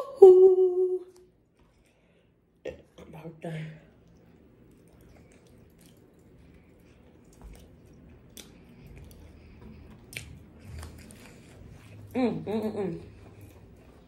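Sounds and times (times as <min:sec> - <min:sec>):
person chewing: 0:01.1 - 0:03.0, 0:03.9 - 0:12.2, 0:13.0 - 0:14.0.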